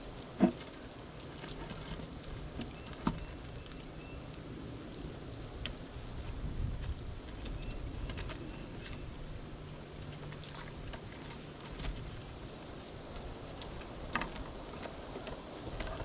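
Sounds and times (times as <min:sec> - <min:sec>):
squirrel cracking seed shells: 0:07.2 - 0:16.0.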